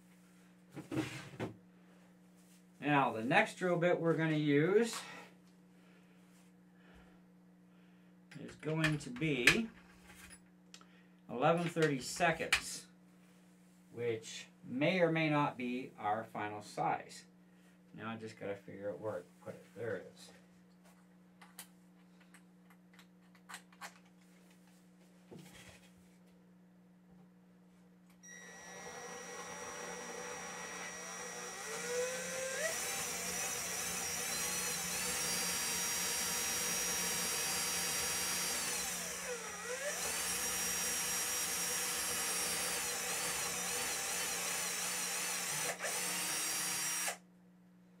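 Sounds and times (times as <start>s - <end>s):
electric drill whining: 28.2s - 47.2s.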